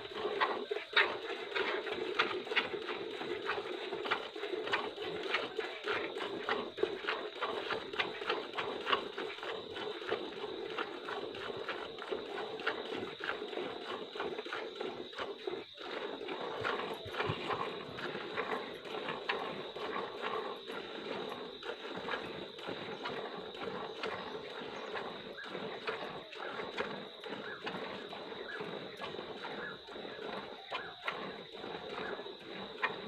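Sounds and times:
milk squirting into bucket: 0.4 - 28.7.

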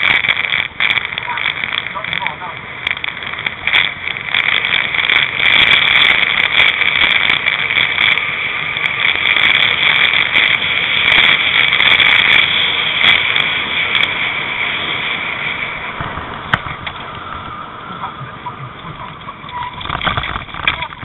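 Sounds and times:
small clicks and rattles: 0.0 - 14.2, 18.8 - 21.0
cart wheels rolling on tarmac: 0.0 - 21.0.

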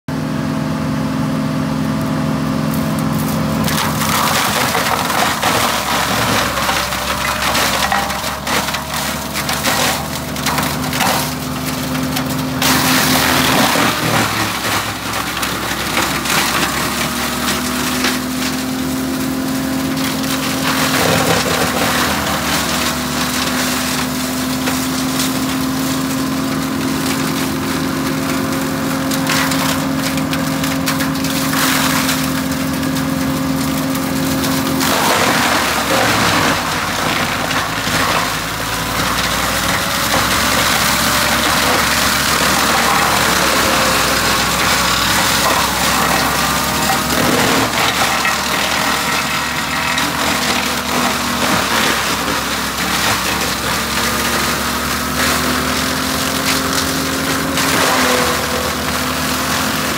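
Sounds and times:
tractor and rotor humming: 0.0 - 59.9
wood crackling and splintering: 1.9 - 59.9.

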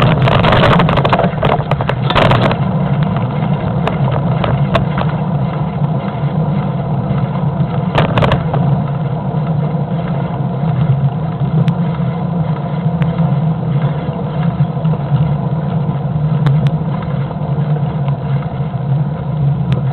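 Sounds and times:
short rattle: 0.0 - 12.1
engine and road drone: 0.0 - 19.9.

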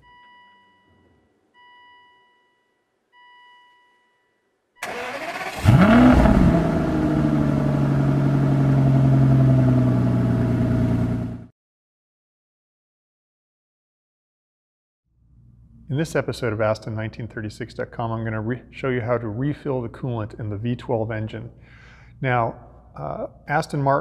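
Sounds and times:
car engine revving and idling: 4.9 - 11.5.

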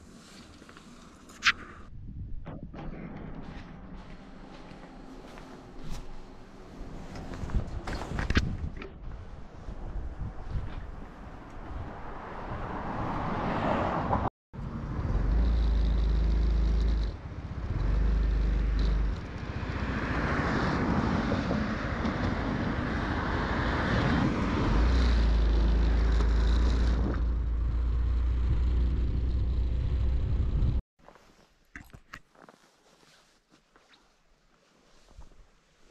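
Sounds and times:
wind noise on microphone: 1.8 - 3.4, 7.1 - 13.4.

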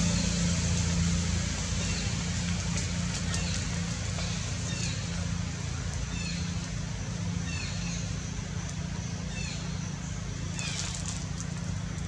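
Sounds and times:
low mechanical hum: 0.0 - 12.0.

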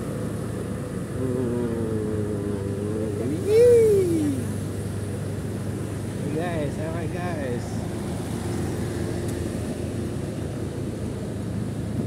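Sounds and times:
motorcycle engine running: 0.8 - 3.4
drawn-out voice-like call: 1.2 - 4.6.

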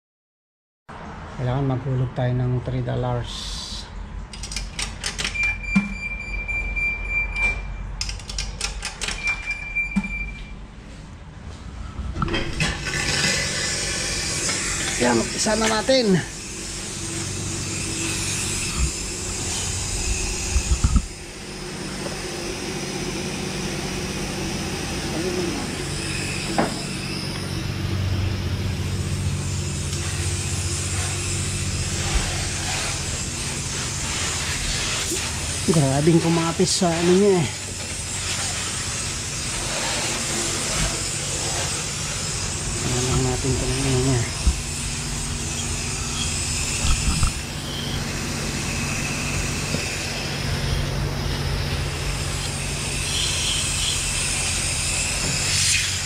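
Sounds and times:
steady high beep: 5.4 - 7.9, 9.2 - 10.6
pressure washer spraying water: 12.7 - 27.5, 28.8 - 56.0.

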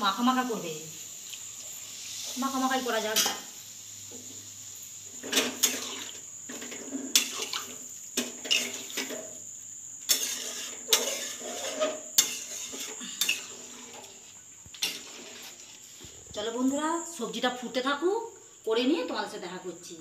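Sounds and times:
metal spatula scraping a pan: 5.2 - 9.4, 10.0 - 16.0.

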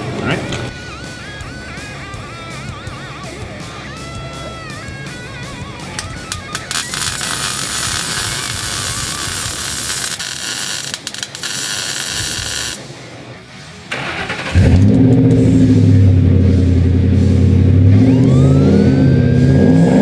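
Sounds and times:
arc welding crackling hiss: 6.3 - 12.8
truck engine starting and running: 13.9 - 20.0.

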